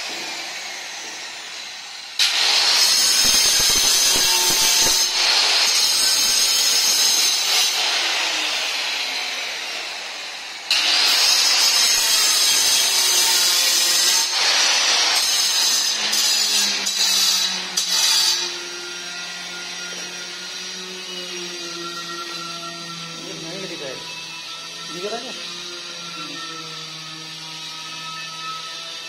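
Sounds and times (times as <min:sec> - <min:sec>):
stone cutter grinding whine: 0:00.0 - 0:29.0.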